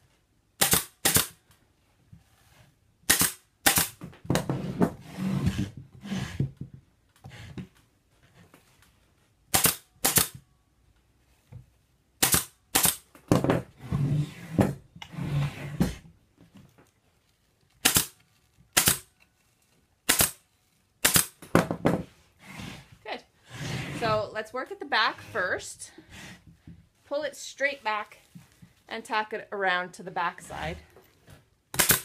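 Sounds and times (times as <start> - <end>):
pneumatic staple gun shots: 0.6 - 1.4, 3.1 - 4.0, 9.5 - 10.4, 12.2 - 13.0, 17.8 - 18.2, 18.8 - 19.1, 20.1 - 20.4, 21.0 - 21.4, 31.8 - 32.0.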